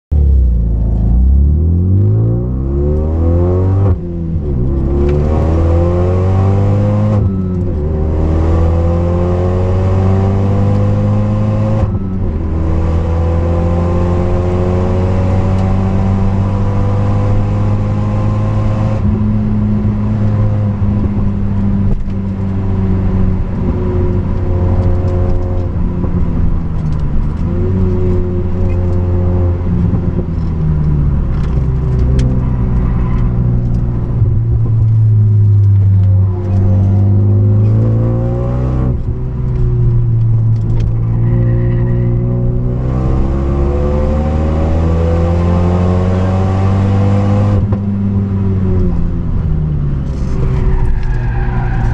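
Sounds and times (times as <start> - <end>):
car engine accelerating: 0.1 - 51.9
gear changes: 14.2 - 51.9.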